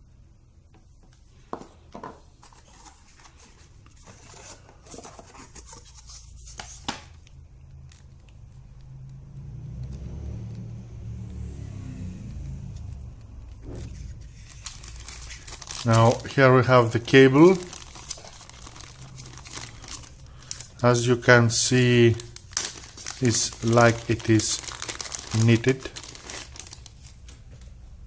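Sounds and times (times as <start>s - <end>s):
low rumble: 8.6s - 15.8s.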